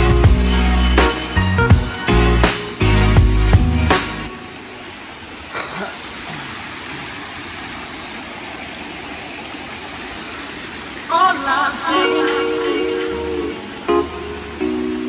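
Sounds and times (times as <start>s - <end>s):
music: 0.0s - 4.5s, 11.8s - 15.0s
fountain water splashing into pool: 4.0s - 15.0s.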